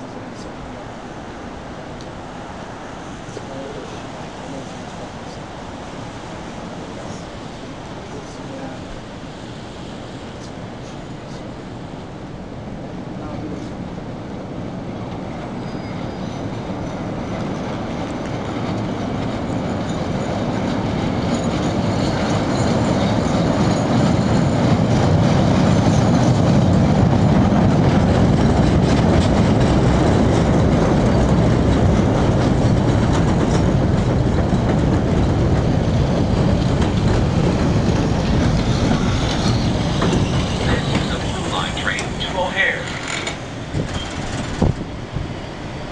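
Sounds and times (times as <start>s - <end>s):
train running on elevated track: 0.0s - 45.9s
wheels clickety-clack on rails: 13.2s - 45.9s.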